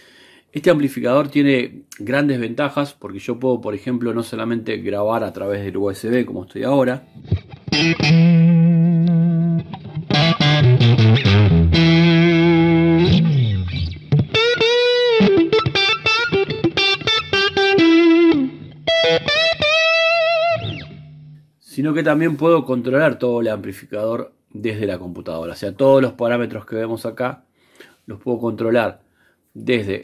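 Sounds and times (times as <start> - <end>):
overdriven electric guitar: 7.2 - 21.4.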